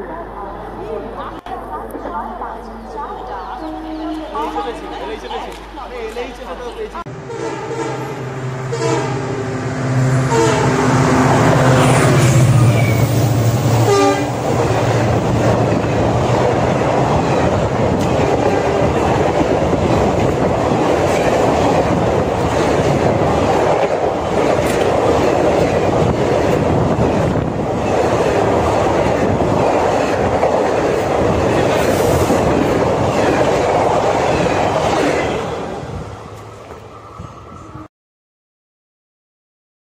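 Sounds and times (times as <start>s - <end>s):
diesel locomotive engine: 0.0s - 37.9s
train coaches rumbling: 0.0s - 37.9s
locomotive horn: 7.1s - 15.0s.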